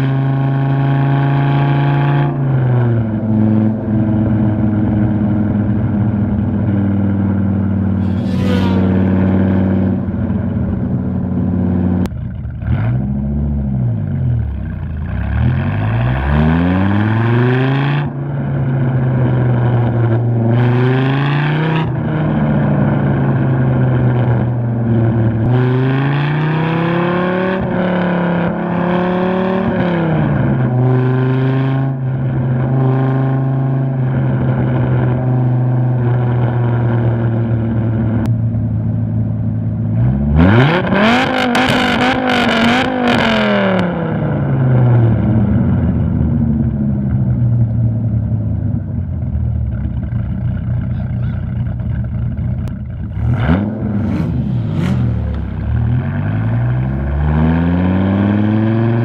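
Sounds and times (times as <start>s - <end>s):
car engine accelerating and revving: 0.0s - 38.3s, 39.8s - 48.9s, 50.5s - 59.0s.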